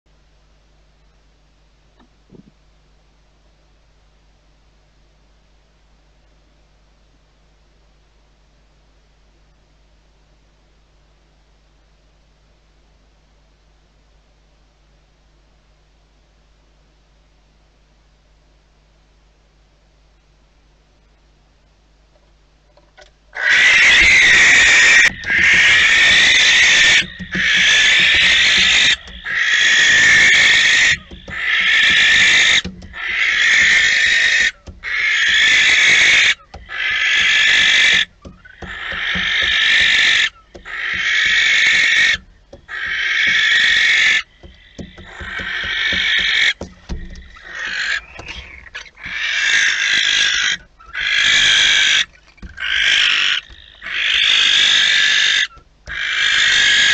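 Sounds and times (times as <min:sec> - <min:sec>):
barn owl hissing screech calls: 0:23.4 - 0:56.9.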